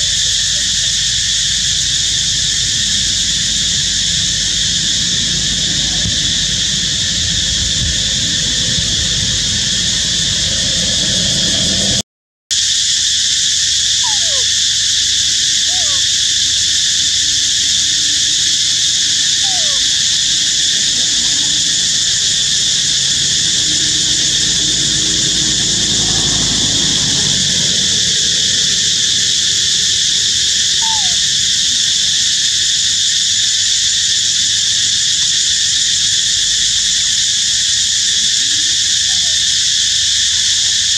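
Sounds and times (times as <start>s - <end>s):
insects droning: 0.0s - 40.9s.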